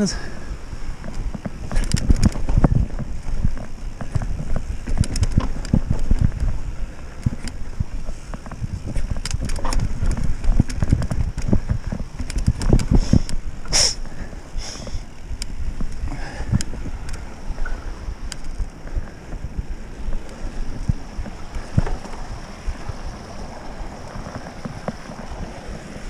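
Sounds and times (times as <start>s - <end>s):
bike rattling over rocks: 0.0s - 26.0s
wind rumbling on microphone: 0.0s - 26.0s
sharp hiss: 13.0s - 15.0s.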